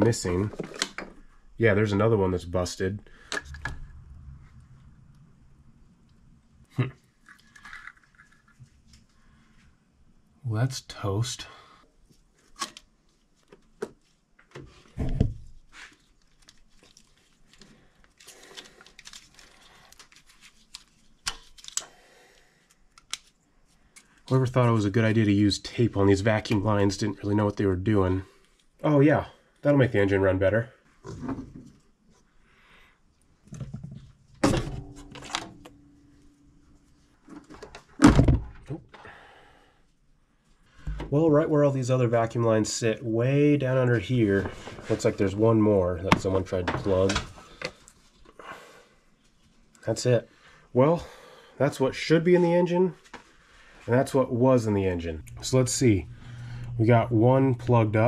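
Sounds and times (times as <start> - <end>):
rubber and plastic clicks and scraping: 0.4 - 1.2, 12.1 - 21.9, 22.6 - 24.3.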